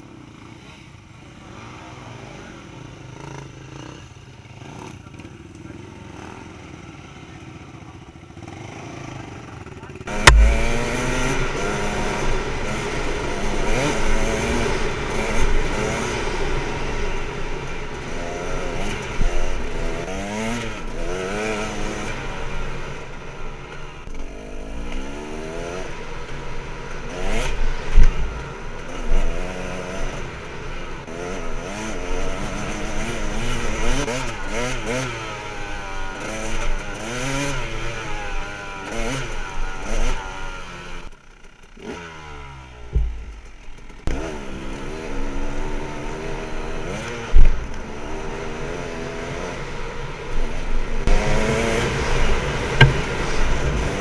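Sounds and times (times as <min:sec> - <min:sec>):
bike rattling: 0:10.1 - 0:37.5, 0:42.8 - 0:44.6, 0:49.8 - 0:54.0
dirt bike engine revving: 0:10.1 - 0:54.0
loud knock: 0:10.3 - 0:11.0, 0:42.9 - 0:43.6, 0:52.8 - 0:53.2.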